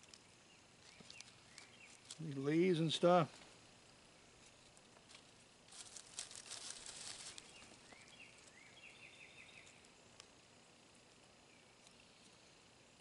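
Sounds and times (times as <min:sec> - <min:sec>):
bark chips and leaves rustling: 0:00.0 - 0:12.5
bird chirping: 0:00.1 - 0:03.0, 0:07.3 - 0:10.0.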